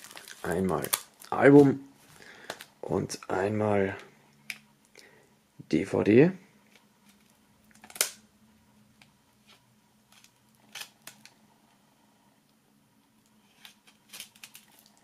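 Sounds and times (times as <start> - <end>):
shrink-wrap foil crinkling: 0.0 - 1.7, 13.5 - 15.0.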